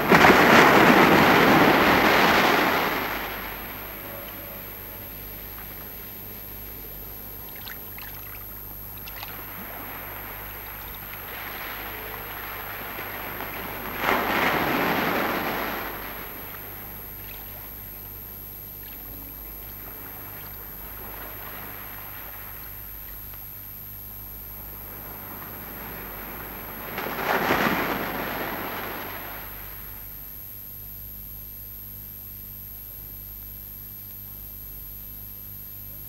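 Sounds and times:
small waves washing on sand: 0:00.0 - 0:06.8, 0:09.0 - 0:17.9, 0:18.9 - 0:23.5, 0:24.6 - 0:30.0
surf hiss: 0:00.0 - 0:36.0.

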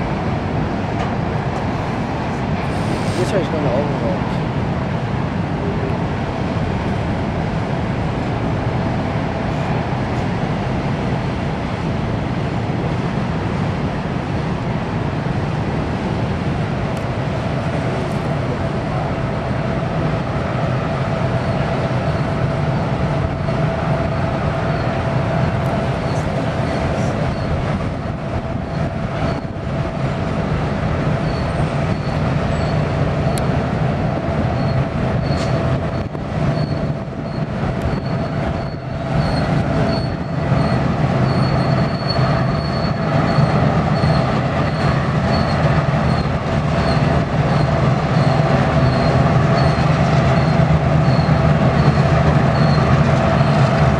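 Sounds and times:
diesel locomotive engines droning: 0:00.0 - 0:53.9
high wheel squeal: 0:26.0 - 0:27.6, 0:31.2 - 0:33.4, 0:34.5 - 0:53.8.

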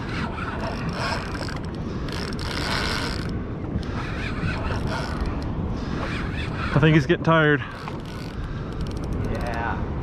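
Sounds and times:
wind on microphone: 0:00.0 - 0:10.0
fishing reel whirring: 0:00.2 - 0:03.3, 0:07.7 - 0:09.2.

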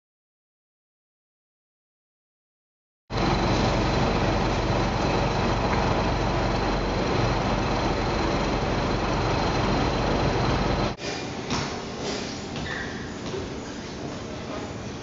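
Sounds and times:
low engine hum: 0:03.1 - 0:11.0
street traffic noise: 0:03.1 - 0:12.6.

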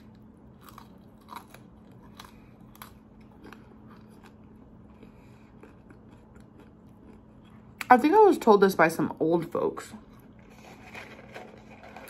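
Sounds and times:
crunchy chewing: 0:00.0 - 0:07.9.

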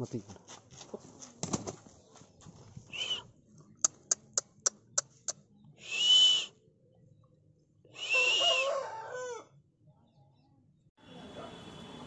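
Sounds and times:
rooster crowing: 0:08.0 - 0:09.5
rooster harsh call: 0:08.0 - 0:09.5.

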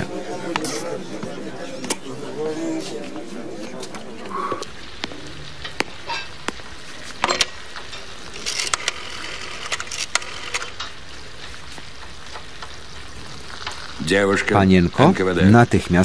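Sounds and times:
steady low hiss: 0:00.0 - 0:16.0
kitchen clicks and clinks: 0:07.2 - 0:08.1.

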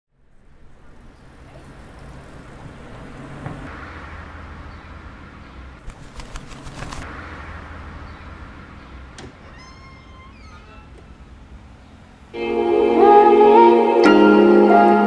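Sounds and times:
road traffic rumble: 0:00.1 - 0:12.5
sharp clicks: 0:05.8 - 0:07.0.

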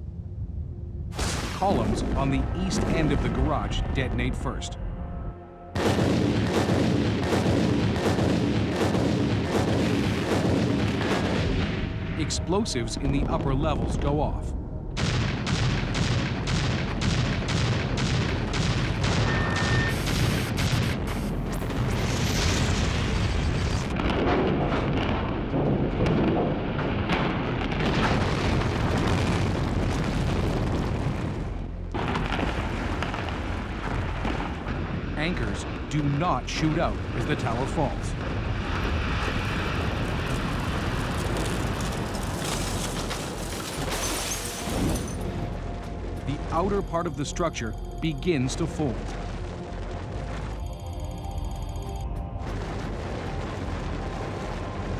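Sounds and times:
building collapse rumble: 0:00.0 - 0:04.6, 0:05.8 - 0:51.2, 0:52.3 - 0:54.9
explosive charges detonating: 0:01.1 - 0:03.6.

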